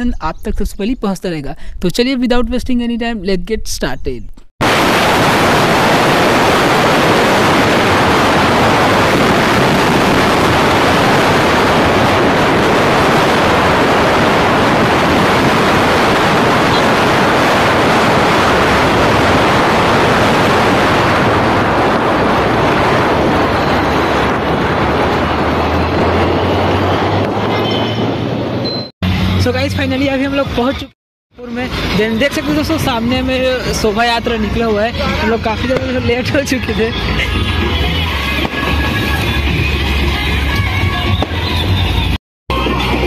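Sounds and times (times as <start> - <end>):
wind and road noise: 0.0 - 43.0.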